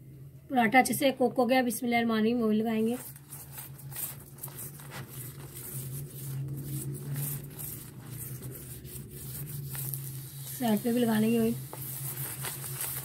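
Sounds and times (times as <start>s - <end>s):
steady low hum: 0.0s - 13.0s
steel spoon scraping flatbread: 2.8s - 13.0s.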